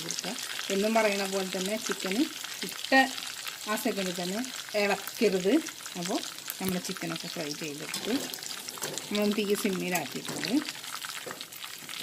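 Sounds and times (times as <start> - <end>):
chicken frying in oil: 0.0 - 12.0
steel spatula stirring: 7.7 - 11.6.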